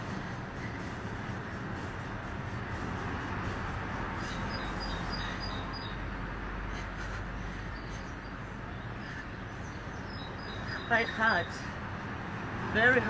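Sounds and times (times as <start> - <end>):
outdoor background noise: 0.0 - 13.0
small birds chirping: 4.2 - 12.0.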